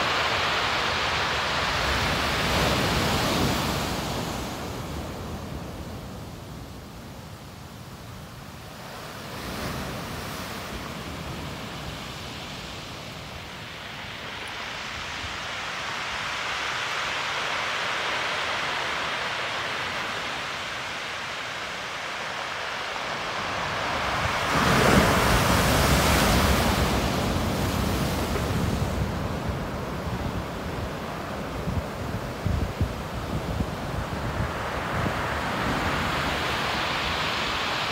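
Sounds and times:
waves breaking on shore: 0.0 - 37.9
wind buffeting microphone: 23.4 - 37.9.

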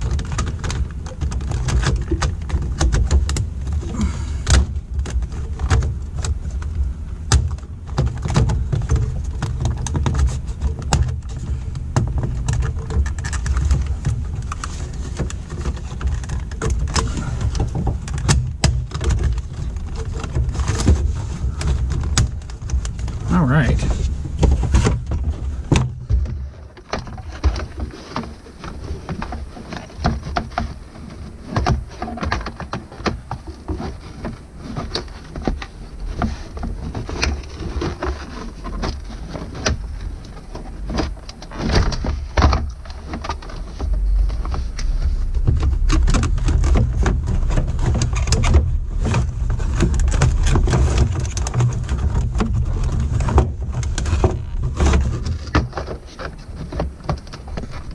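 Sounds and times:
plastic trim knocks and scrapes: 0.0 - 57.9
low rumble: 39.0 - 55.6.

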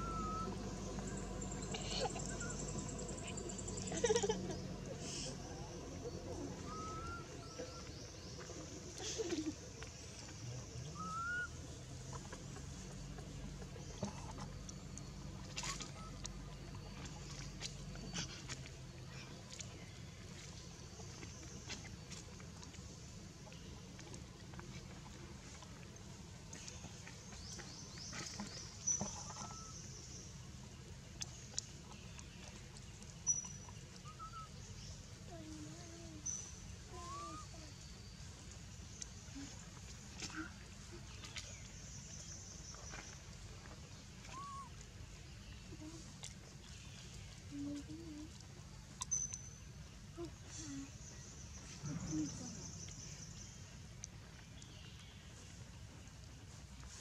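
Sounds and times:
bird rising whistle: 0.0 - 0.6, 6.7 - 7.6
faint outdoor background: 0.0 - 57.0.

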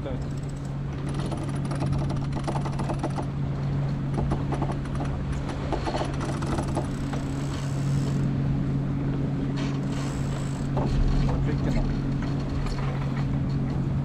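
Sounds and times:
steady low hum: 0.0 - 14.0
wind and water noise: 0.0 - 14.0
light knocks and clicks: 0.2 - 7.6, 10.6 - 13.8.

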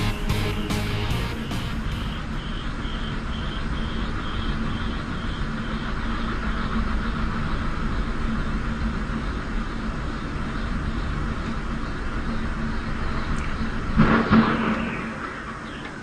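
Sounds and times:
faint pulsing high note: 0.0 - 5.4
low hum: 0.0 - 16.0
rushing wind: 0.0 - 16.0
wind turbine spinning: 1.4 - 16.0.

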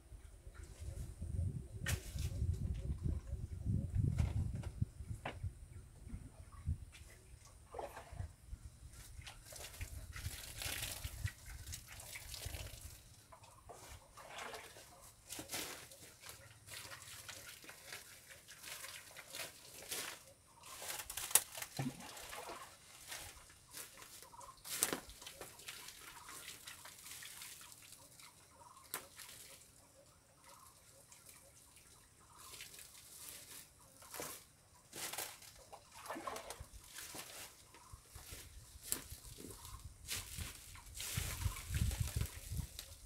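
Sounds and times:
birds calling faintly: 12.9 - 43.0.

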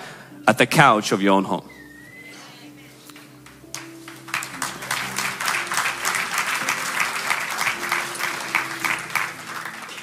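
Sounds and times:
audience applauding: 3.7 - 10.0.

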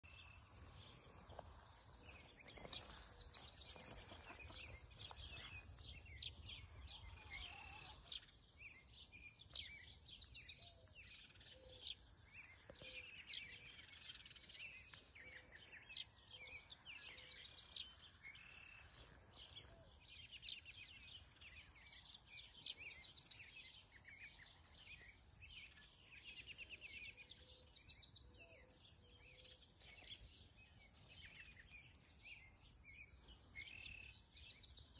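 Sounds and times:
birds chirping and trilling: 0.0 - 34.9.

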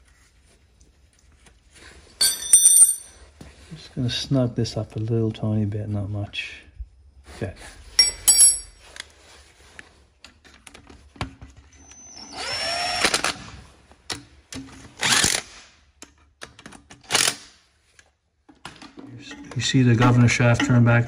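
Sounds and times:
cordless drill motor whine: 11.8 - 13.4.

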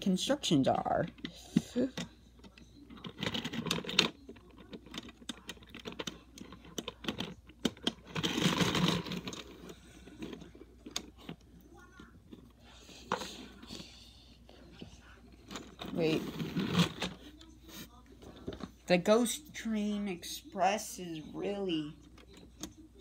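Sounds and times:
plastic bricks clicking and rattling: 1.0 - 11.4.

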